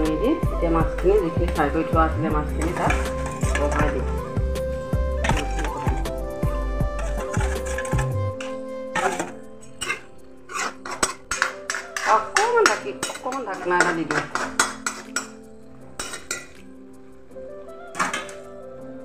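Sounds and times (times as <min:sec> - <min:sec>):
metal ladle scraping a pan: 0:02.4 - 0:04.4, 0:05.2 - 0:06.2, 0:06.9 - 0:16.7.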